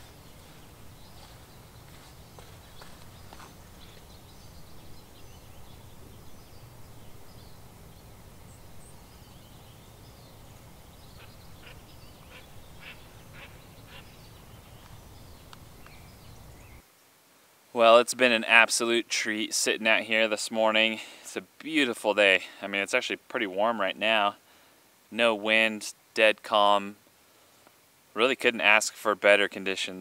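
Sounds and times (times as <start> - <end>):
steady low rumble: 0.0 - 16.6
bird calls: 0.0 - 16.8.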